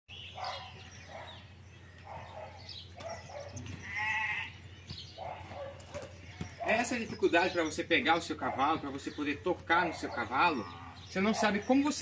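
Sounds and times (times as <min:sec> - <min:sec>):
farm animal bleating: 0:03.5 - 0:04.8, 0:06.2 - 0:06.6.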